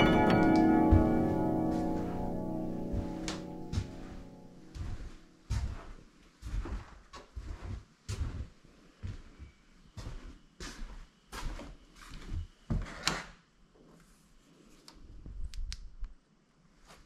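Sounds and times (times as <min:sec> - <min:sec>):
quiet shuffling: 0:00.0 - 0:09.4
footsteps on wooden floorboards: 0:00.7 - 0:13.0.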